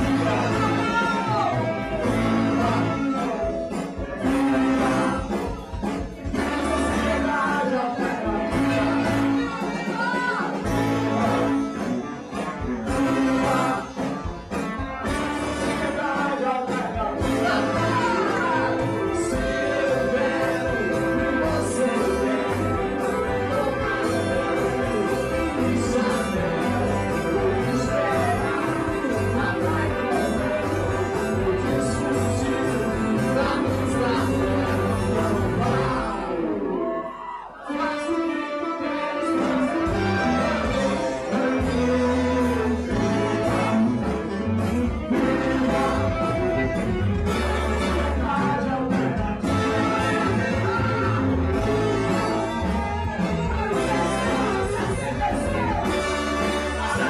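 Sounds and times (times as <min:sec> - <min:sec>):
man singing into microphone: 0:00.0 - 0:05.4, 0:06.3 - 0:09.8, 0:15.4 - 0:37.0, 0:37.6 - 0:57.0
horn section: 0:00.0 - 0:57.0
live rock band playing: 0:00.0 - 0:57.0
electric bass low notes: 0:17.2 - 0:36.4, 0:39.9 - 0:57.0.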